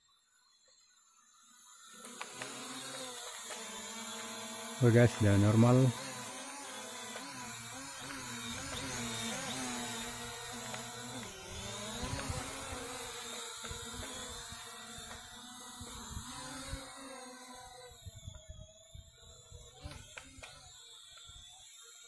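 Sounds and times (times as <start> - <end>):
drone propellers buzzing: 0.6 - 22.0.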